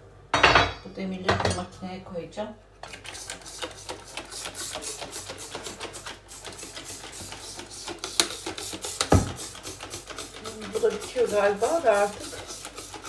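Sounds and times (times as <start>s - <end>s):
spray bottle hissing: 3.0s - 13.0s.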